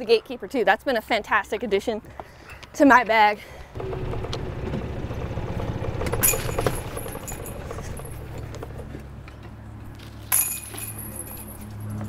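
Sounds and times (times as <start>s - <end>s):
sharp clatter: 3.8s - 9.0s
golf cart engine humming: 3.8s - 9.8s.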